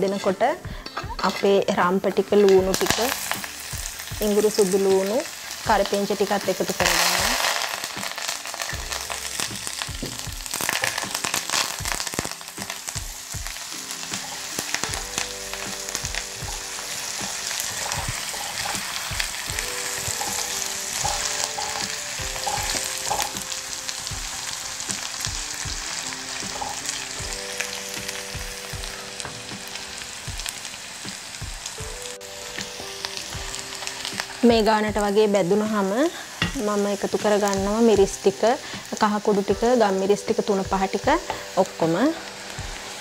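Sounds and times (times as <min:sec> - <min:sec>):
food sizzling in hot oil: 0:00.0 - 0:43.0
spatula stirring: 0:16.4 - 0:23.5.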